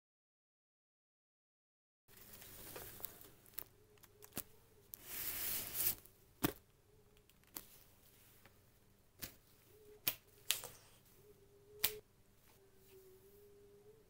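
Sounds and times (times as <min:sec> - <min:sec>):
gloved hands rubbing cardboard: 0:05.0 - 0:06.1.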